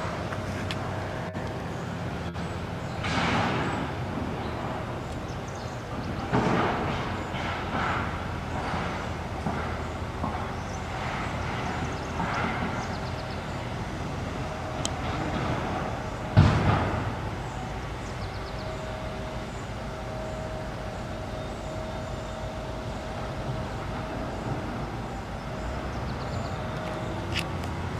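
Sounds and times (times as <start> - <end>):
low rumble of vehicles: 0.0 - 27.9
sharp loud knock: 16.4 - 17.1.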